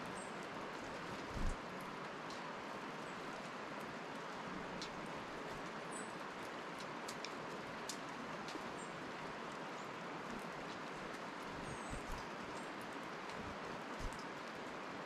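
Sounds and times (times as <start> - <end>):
woodland ambience hiss: 0.0 - 15.0
small clicks: 6.4 - 8.7.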